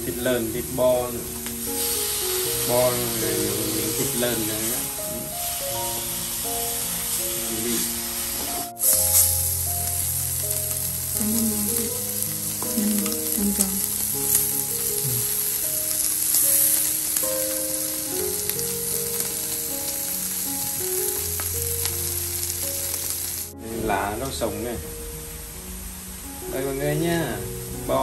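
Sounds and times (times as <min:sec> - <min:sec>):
meat sizzling on grill: 0:00.0 - 0:28.0
soft background music: 0:00.0 - 0:28.0
chopsticks clicking: 0:12.6 - 0:14.5.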